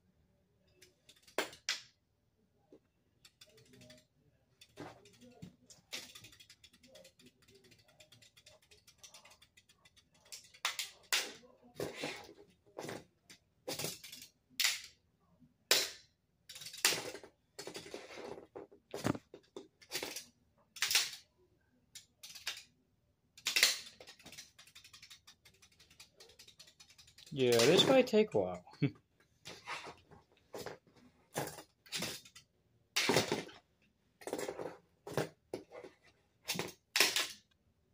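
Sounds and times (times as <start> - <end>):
plastic spinning tops clacking: 3.2 - 12.2, 16.5 - 18.3, 22.0 - 22.7, 23.4 - 28.2, 31.4 - 33.5, 36.5 - 37.4.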